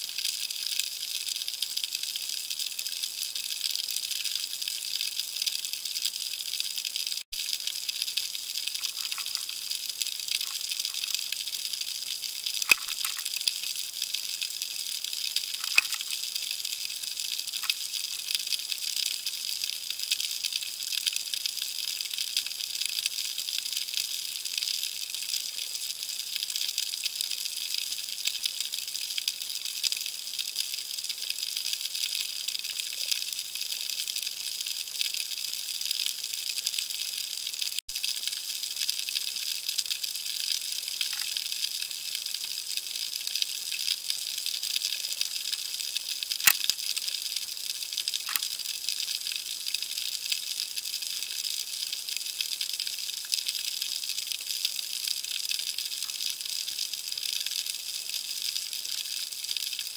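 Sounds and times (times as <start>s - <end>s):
snapping shrimp crackle underwater: 6.3s - 18.7s, 40.9s - 41.8s, 44.7s - 47.2s, 48.0s - 48.7s.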